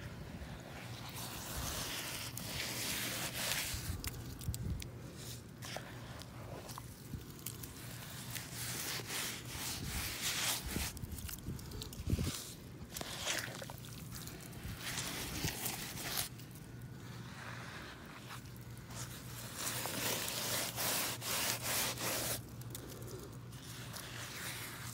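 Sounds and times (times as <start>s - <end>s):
mud squelching on rubber: 0.3s - 24.9s
muddy water splashing on boots: 12.2s - 16.0s.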